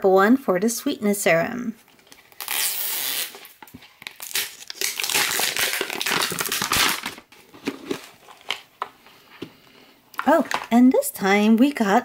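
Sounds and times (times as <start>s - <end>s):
plastic wrapper tearing: 1.9s - 8.7s
plastic wrapper crinkling: 1.9s - 9.0s.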